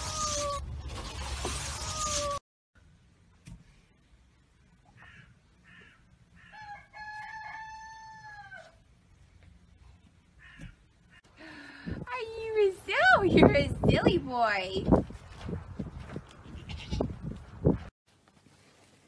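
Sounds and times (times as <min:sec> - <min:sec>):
rooster crowing: 0:06.4 - 0:08.8.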